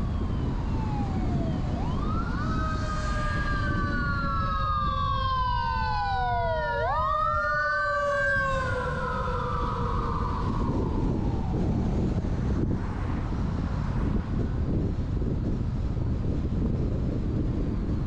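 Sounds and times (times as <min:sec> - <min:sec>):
emergency siren wailing: 0:00.0 - 0:14.2
low road noise rumble: 0:00.0 - 0:18.0.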